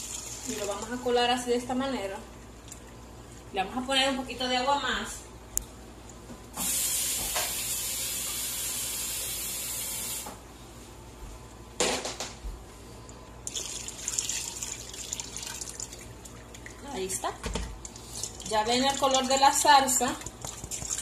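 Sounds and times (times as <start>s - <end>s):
tap water running: 0.0s - 3.1s, 6.6s - 10.4s, 13.4s - 21.0s
water splashing through strainer: 13.4s - 17.0s, 17.8s - 21.0s.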